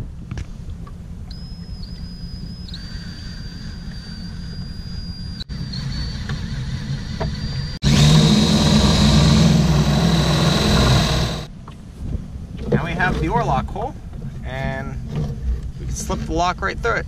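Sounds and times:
drill motor whine: 5.2 - 11.5.

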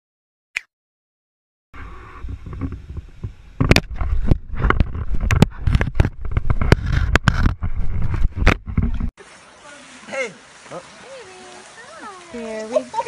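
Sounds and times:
rumbling sloshing handling noise: 2.1 - 9.1.

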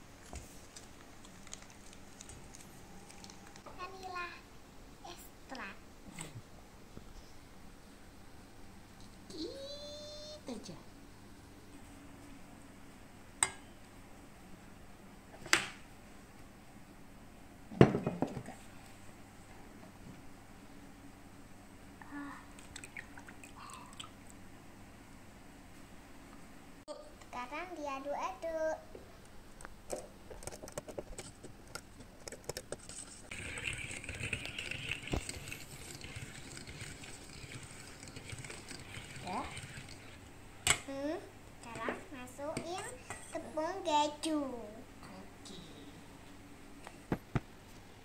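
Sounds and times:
whisk rattling whir: 32.5 - 41.1.

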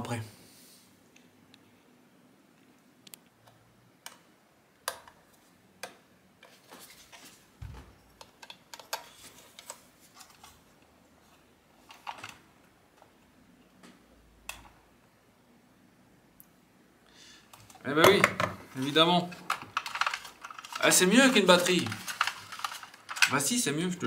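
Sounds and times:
small parts clicking and tapping: 8.1 - 10.5, 19.3 - 23.5.

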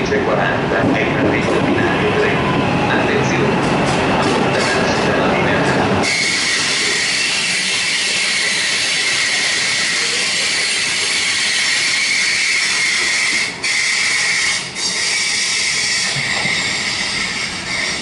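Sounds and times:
train rolling hiss: 4.6 - 18.0
high-pitched train wheel squeal: 6.0 - 18.0.

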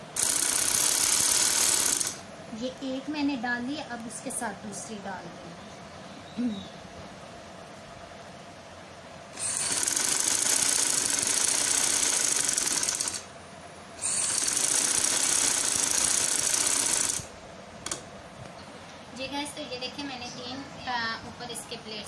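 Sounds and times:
sewing machine running fast: 0.0 - 2.2, 9.4 - 13.3, 14.0 - 17.3.

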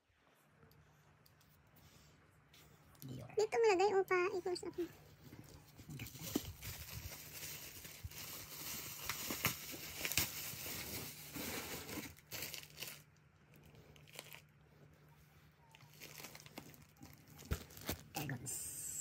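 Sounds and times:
rustling and crinkling: 4.1 - 18.4.

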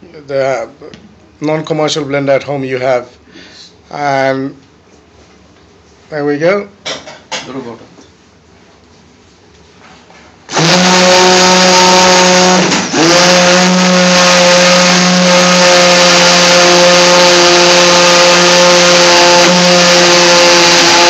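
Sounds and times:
immersion blender whining: 10.5 - 21.0.

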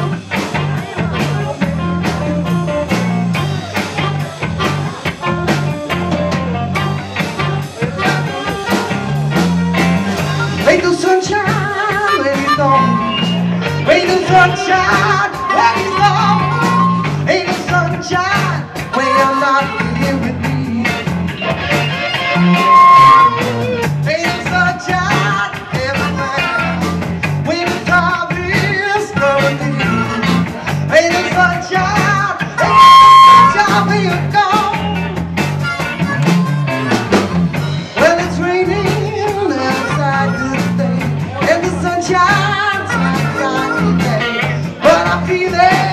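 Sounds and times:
blues-rock band playing: 0.0 - 45.9
person singing lead vocal: 10.0 - 21.7, 22.5 - 35.2, 37.9 - 45.9
amplified harmonica: 11.5 - 17.4, 18.9 - 20.3, 21.3 - 24.0, 29.6 - 30.4, 32.5 - 34.0, 35.5 - 37.2, 39.6 - 40.9, 42.9 - 44.6.

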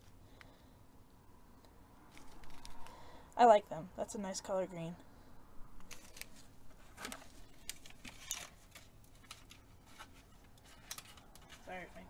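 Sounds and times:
paper and plastic packets rustling: 2.1 - 3.1, 5.8 - 12.0.

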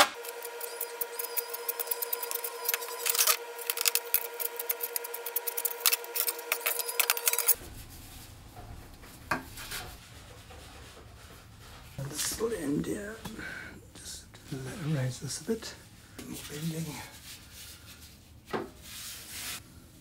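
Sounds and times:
steady hum: 0.0 - 17.6
hand tool scraping: 0.2 - 7.6.

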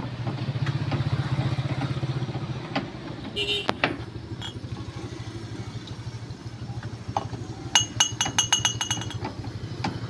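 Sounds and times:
utensil clinking on plate: 7.8 - 9.2.

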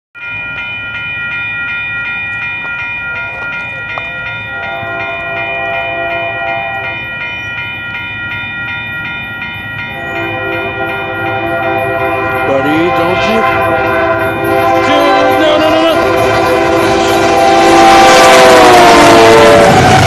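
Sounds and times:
crossing bell ringing: 0.2 - 20.0
locomotive air horn chord: 4.5 - 7.1, 10.0 - 20.0.

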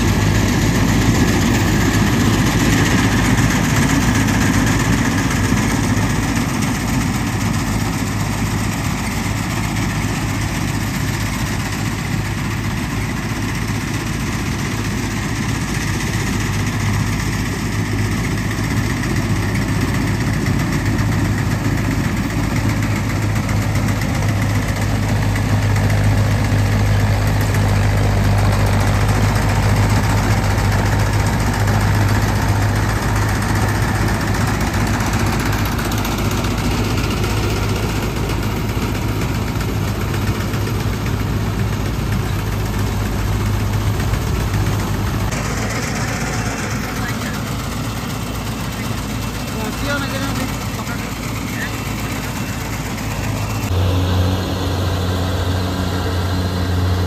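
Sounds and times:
diesel tractor engine running: 0.0 - 57.0.

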